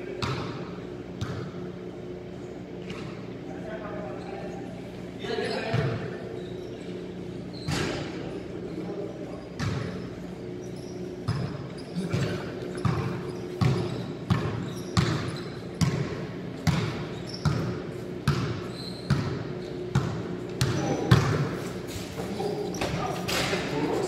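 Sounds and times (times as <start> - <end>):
basketball bouncing on court floor: 0.2 - 1.6, 9.6 - 10.0, 11.3 - 21.5.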